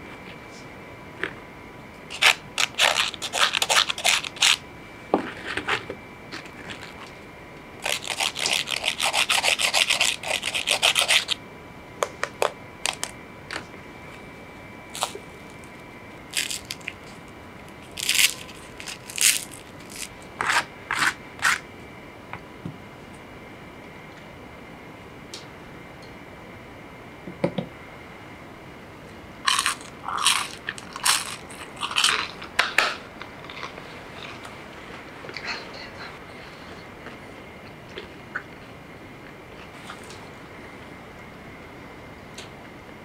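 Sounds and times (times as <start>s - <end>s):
fries rustling and crackling: 14.9s - 21.6s, 29.5s - 35.3s.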